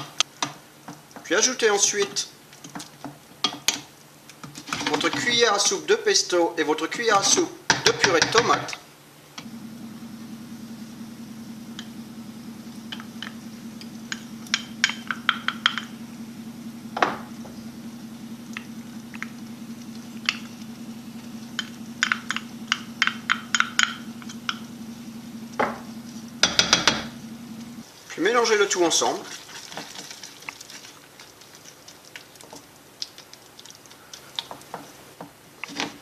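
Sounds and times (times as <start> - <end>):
steady low hum: 6.8 - 29.2
wooden spoon tapping a saucepan: 14.1 - 15.9.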